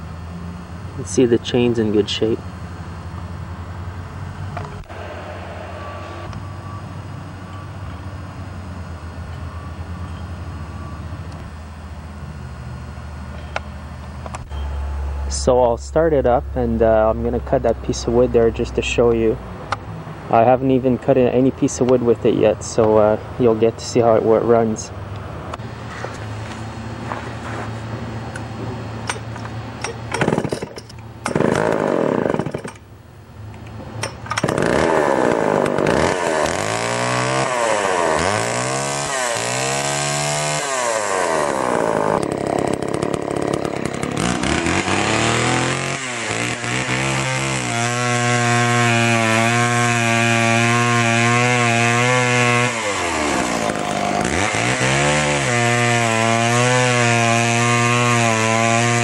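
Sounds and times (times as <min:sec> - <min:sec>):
chainsaw cutting log: 0:29.1 - 0:32.9, 0:34.3 - 0:59.0
chainsaw pull-starting and revving: 0:29.8 - 0:32.8, 0:34.4 - 0:59.0.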